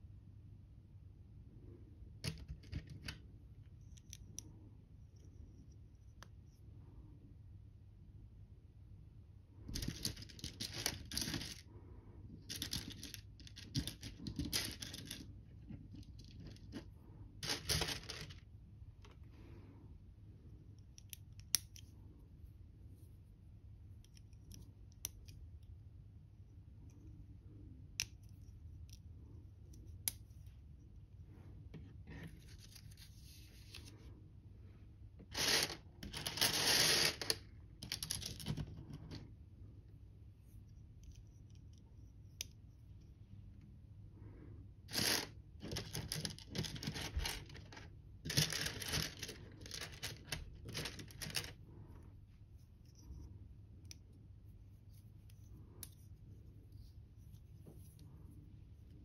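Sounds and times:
plastic bricks rattling: 0:35.4 - 0:39.2, 0:44.9 - 0:51.5
plastic bricks clicking together: 0:44.9 - 0:51.5.

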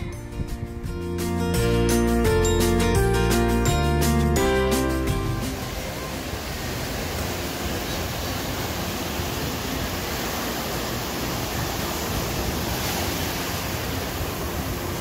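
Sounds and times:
surf washing up beach: 0:04.8 - 0:15.0.

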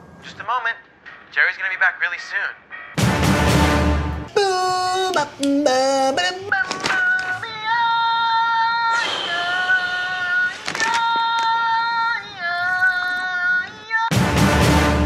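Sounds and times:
person singing wordless melody: 0:04.3 - 0:14.2
loud noisy burst: 0:08.9 - 0:11.0.

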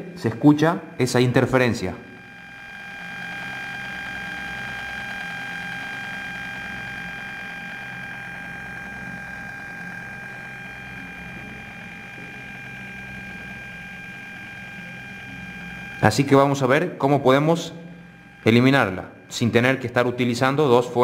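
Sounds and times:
high electronic whine: 0:00.0 - 0:21.0
low electrical buzz: 0:00.0 - 0:21.0
speaker hiss: 0:15.1 - 0:21.0.

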